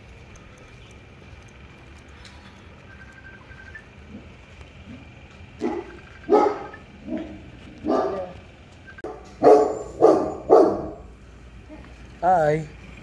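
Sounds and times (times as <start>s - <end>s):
dog barking: 5.6s - 8.4s, 9.0s - 11.1s.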